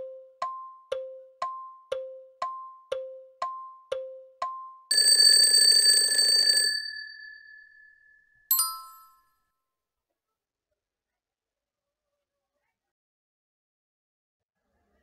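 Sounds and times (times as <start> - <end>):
timer ticks high and low: 0.0 - 6.0
bright chime: 7.0 - 9.3
loud rattling bell: 8.5 - 9.1.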